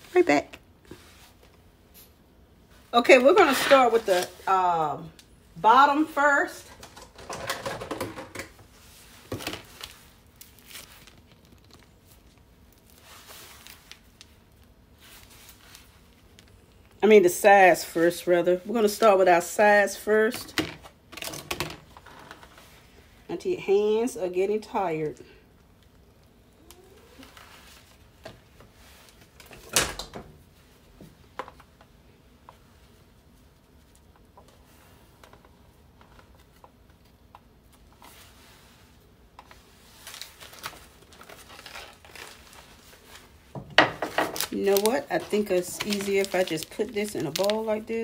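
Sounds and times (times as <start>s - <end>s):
kitchenware clatter: 6.6s - 8.6s.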